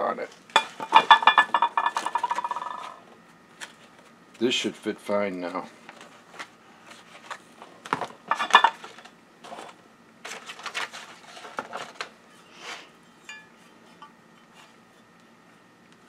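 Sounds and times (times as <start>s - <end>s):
metal parts clinking and clanking: 8.3s - 9.0s
short metallic ring: 13.2s - 14.2s.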